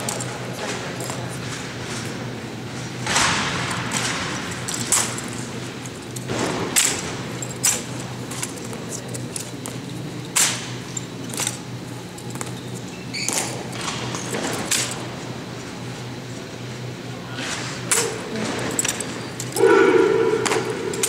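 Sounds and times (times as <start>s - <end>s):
rifles slapped and caught: 6.2s - 8.6s, 9.4s - 10.7s, 17.5s - 19.6s
steady low hum: 13.6s - 21.0s.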